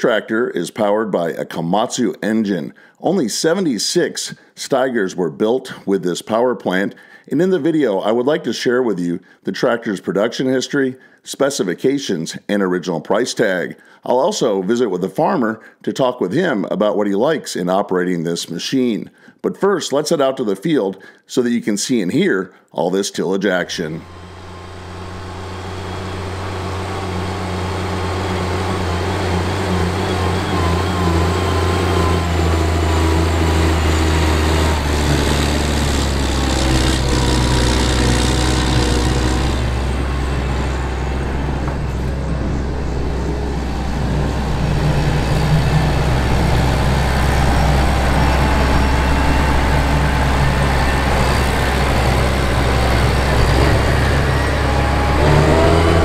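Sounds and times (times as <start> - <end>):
tractor diesel engine under load: 24.0 - 56.0.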